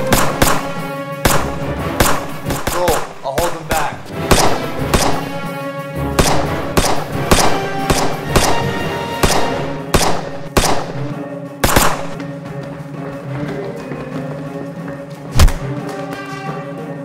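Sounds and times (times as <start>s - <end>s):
handgun shots: 0.0s - 5.4s, 6.2s - 12.2s, 15.4s - 15.6s
background music: 0.0s - 17.0s.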